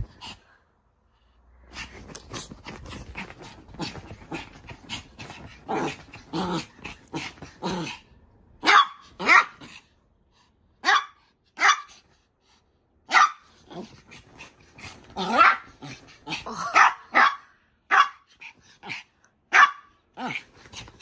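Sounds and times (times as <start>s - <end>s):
dog play-growling: 1.6s - 8.1s, 13.5s - 16.7s, 20.2s - 21.0s
dog barking: 8.6s - 9.6s, 10.8s - 11.9s, 13.1s - 13.5s, 16.7s - 18.3s, 19.5s - 20.0s.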